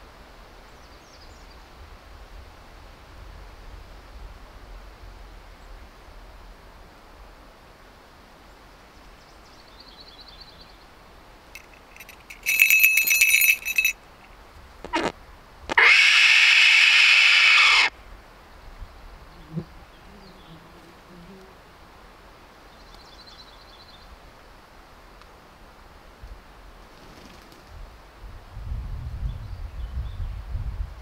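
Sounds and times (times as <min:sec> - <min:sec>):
falconry bells jingling: 0:11.6 - 0:14.3
hawk screaming: 0:15.8 - 0:17.9.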